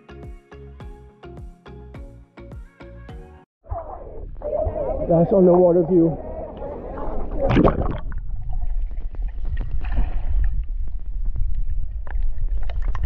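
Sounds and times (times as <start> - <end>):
low underwater rumble: 3.6 - 13.0
bubbling: 6.2 - 13.0
splash into water: 7.3 - 9.1.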